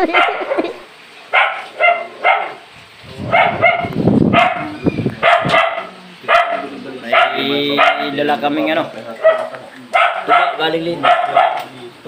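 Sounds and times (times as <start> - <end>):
dog barking: 0.0 - 0.7, 1.3 - 2.6, 3.2 - 8.2, 9.2 - 11.8.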